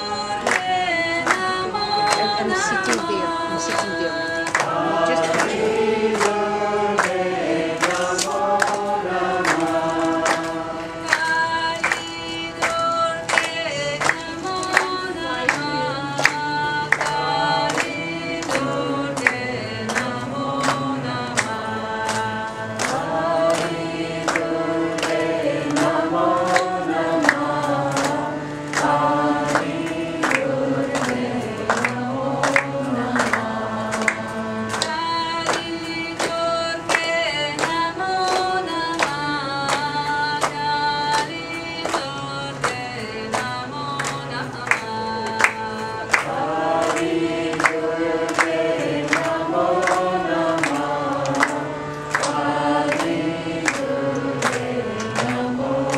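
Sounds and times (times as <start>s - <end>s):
group of voices chanting: 2.1s - 11.1s, 46.1s - 55.9s.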